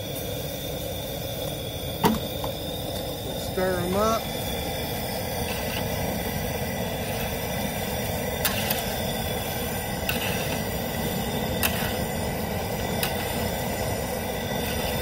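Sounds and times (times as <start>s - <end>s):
gas burner roaring: 0.0s - 15.0s
water boiling and churning: 0.0s - 15.0s.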